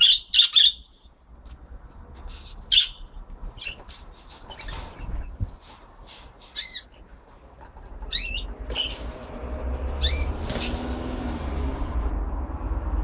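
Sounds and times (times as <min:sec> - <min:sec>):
budgerigars chirping and squawking: 0:00.0 - 0:01.0, 0:02.3 - 0:07.0, 0:08.0 - 0:09.3, 0:09.9 - 0:10.8.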